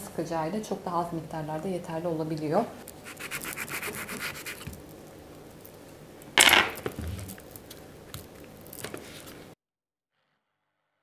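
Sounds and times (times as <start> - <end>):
knife clattering on countertop: 6.4 - 6.9.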